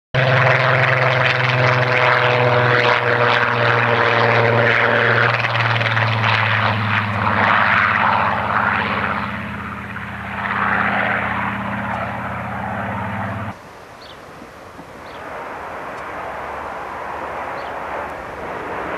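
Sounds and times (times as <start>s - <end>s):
rushing roar: 0.2s - 13.6s
aircraft engine drone: 0.2s - 18.9s.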